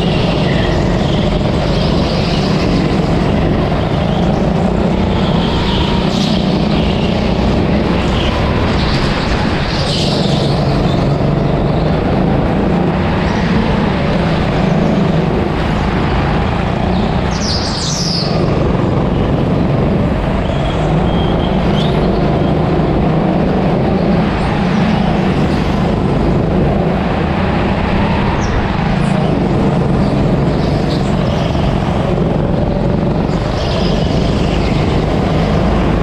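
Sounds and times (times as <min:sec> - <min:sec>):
constant noisy rush: 0:00.0 - 0:36.0
go-kart engine running: 0:00.0 - 0:36.0.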